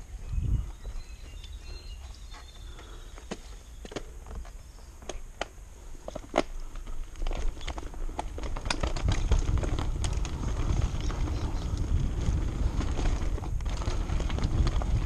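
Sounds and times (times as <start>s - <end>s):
wind rumble on microphone: 0.0s - 1.8s, 7.3s - 15.0s
bike tyres rolling over dirt: 0.0s - 15.0s
bike chain and frame rattling: 6.1s - 15.0s.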